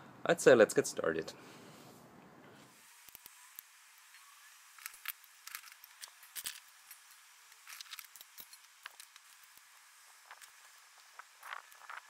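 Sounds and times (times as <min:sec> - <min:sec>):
crackling kindling fire: 0:02.7 - 0:12.0.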